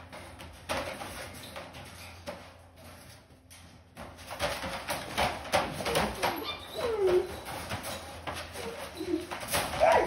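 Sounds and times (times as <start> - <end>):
puppies knocking against crate: 3.9 - 10.0
puppy whining: 5.8 - 10.0.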